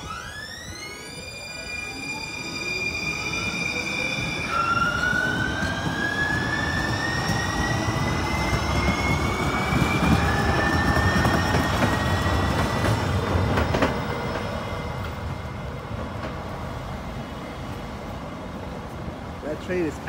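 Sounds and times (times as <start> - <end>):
electric train motor whine: 0.0 - 12.7
train wheels rumbling on rails: 0.0 - 20.0.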